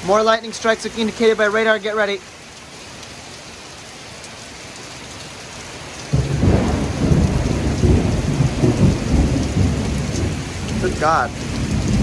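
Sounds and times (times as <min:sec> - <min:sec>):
heavy rain hissing: 0:00.0 - 0:12.0
thunder rolling: 0:06.1 - 0:12.0.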